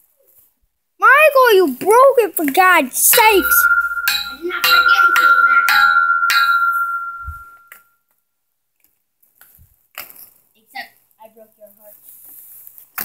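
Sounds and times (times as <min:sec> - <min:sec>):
metallic strikes ringing: 0:03.0 - 0:07.7.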